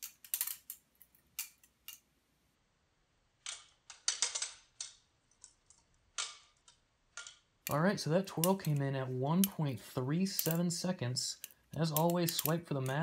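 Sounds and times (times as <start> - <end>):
butterfly knife clicking and clacking: 10.4 - 10.7, 11.4 - 13.0.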